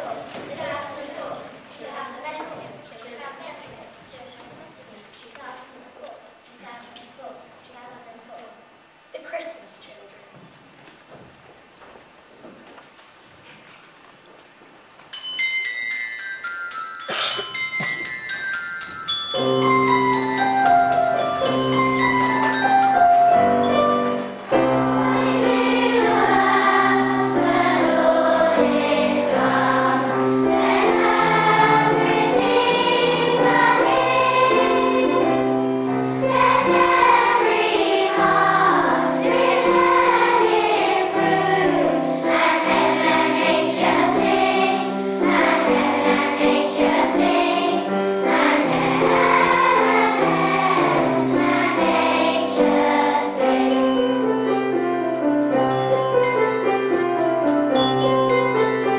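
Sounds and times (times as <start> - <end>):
instrumental accompaniment: 15.1 - 58.9
children's choir singing: 19.3 - 55.2.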